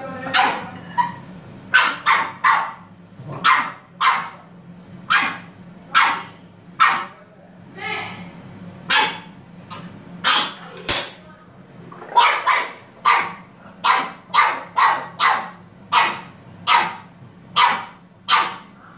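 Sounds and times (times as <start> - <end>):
puppy barking: 0.2 - 4.4, 5.1 - 7.2, 8.9 - 10.7, 12.1 - 18.7.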